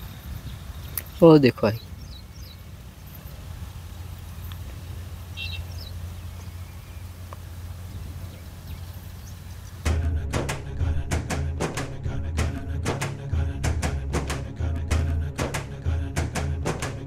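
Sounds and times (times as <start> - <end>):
wind on microphone: 0.0 - 1.2
music: 9.8 - 17.0.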